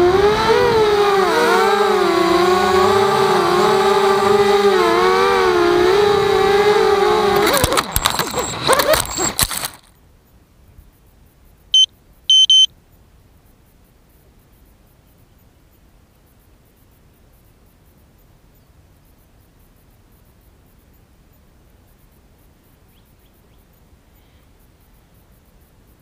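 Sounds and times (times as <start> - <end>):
drone motors whining: 0.0 - 9.8
short high electronic beeps: 11.8 - 12.7.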